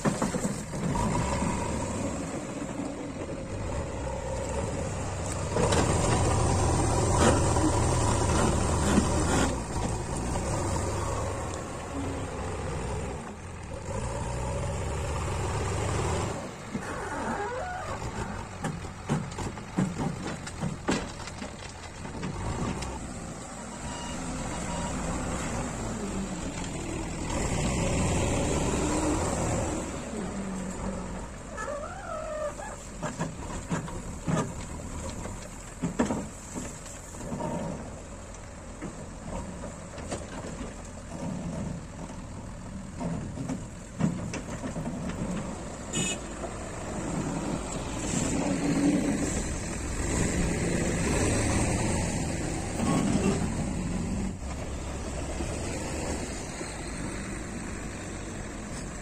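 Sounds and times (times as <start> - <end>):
lorry engine pulling away: 0.0 - 20.9, 21.5 - 59.0
backhoe diesel engine revving: 0.0 - 59.0
gravel clattering into truck bed: 31.5 - 38.0.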